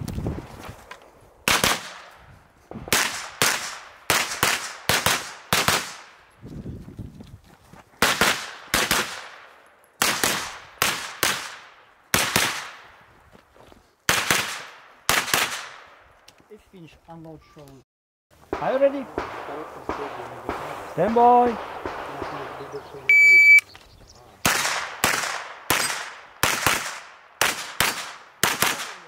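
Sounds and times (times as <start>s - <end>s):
gunshots: 1.4s - 2.1s, 2.8s - 6.2s, 8.0s - 12.9s, 14.1s - 16.0s, 18.5s - 23.3s, 24.4s - 29.0s.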